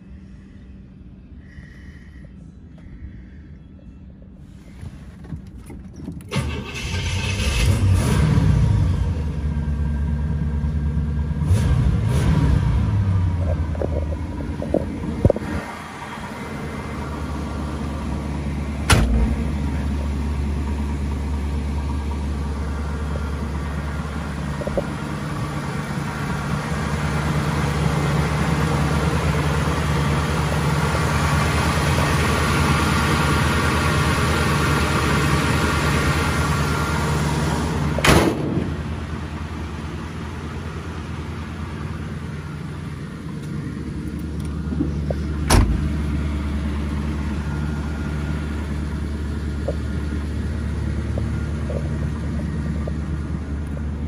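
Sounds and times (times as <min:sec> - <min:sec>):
car engine idling: 0:04.1 - 0:54.0
car engine starting and revving: 0:06.3 - 0:42.2.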